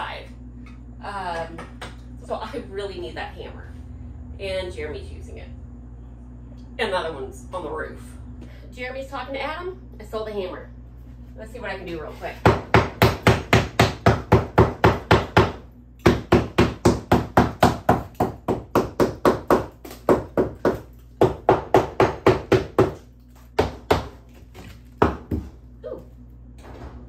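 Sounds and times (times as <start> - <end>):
hammer striking cement: 12.5 - 23.0.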